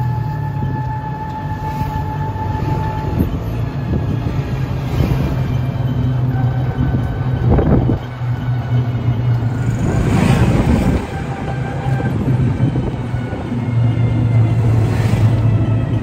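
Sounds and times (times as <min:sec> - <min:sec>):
engine hum: 0:00.0 - 0:16.0
road and wind noise: 0:00.0 - 0:16.0
rushing noise: 0:00.0 - 0:16.0.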